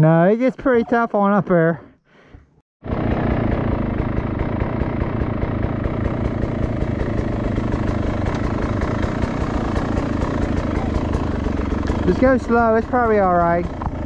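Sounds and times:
dirt bike engine at low revs: 0:02.8 - 0:14.0.

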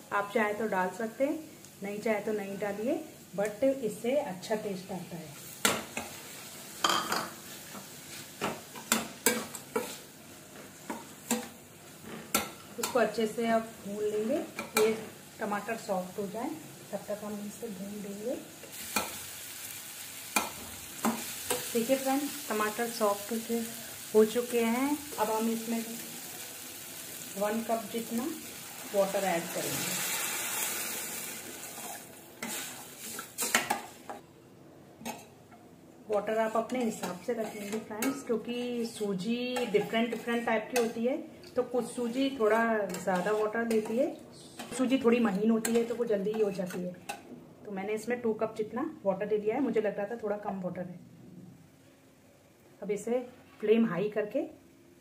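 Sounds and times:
faint frying sizzle: 0:00.0 - 0:34.2, 0:35.0 - 0:50.7
water sizzling in hot pan: 0:12.3 - 0:34.0
metal spatula scraping pan: 0:36.2 - 0:38.4, 0:39.5 - 0:41.0, 0:42.8 - 0:44.0.

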